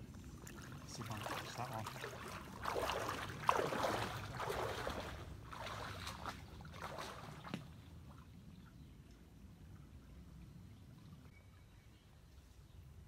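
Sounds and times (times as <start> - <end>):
water sloshing around legs: 0.0 - 8.6
faint water trickle: 0.0 - 13.0.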